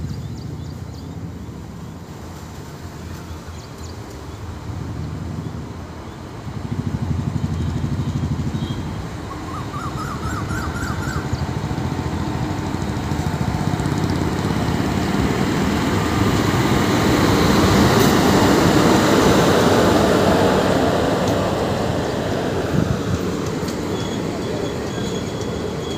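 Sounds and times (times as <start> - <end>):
passing train low pulsing rumble: 9.0 - 25.9.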